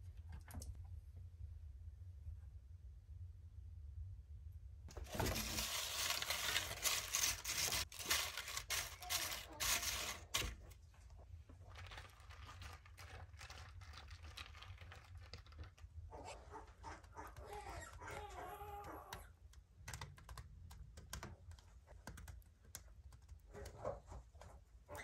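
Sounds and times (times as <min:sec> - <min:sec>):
chips clicking and rustling: 0:04.9 - 0:10.6, 0:11.6 - 0:15.9.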